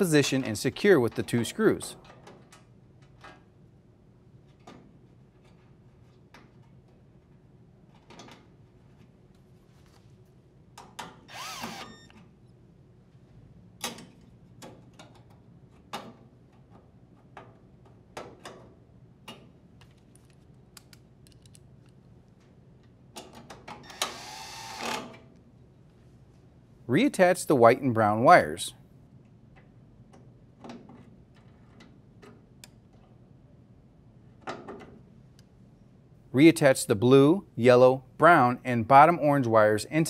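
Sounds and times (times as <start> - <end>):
drill driver driving screws: 11.3 - 12.1, 23.9 - 25.0.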